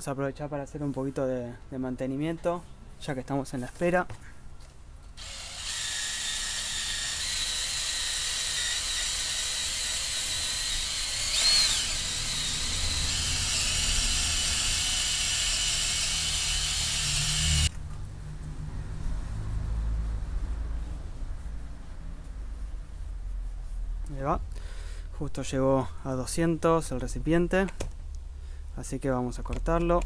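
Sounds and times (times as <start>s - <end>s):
drill with brush grinding rust: 5.2s - 17.7s.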